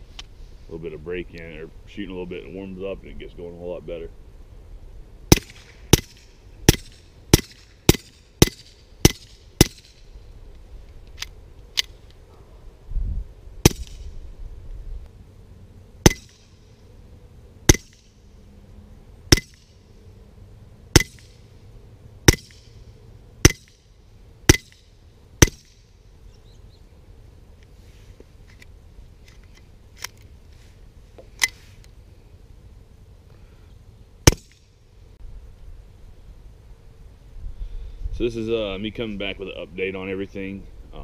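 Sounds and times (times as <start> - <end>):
suppressed pistol shots: 5.3 - 10.0, 16.0 - 16.6, 20.9 - 21.4, 22.2 - 22.8, 24.5 - 25.8, 34.2 - 34.6.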